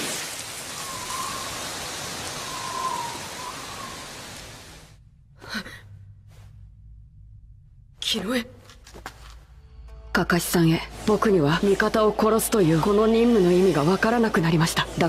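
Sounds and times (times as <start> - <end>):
wind through forest trees: 0.0 - 5.0
faint wavering whistle: 0.7 - 4.4.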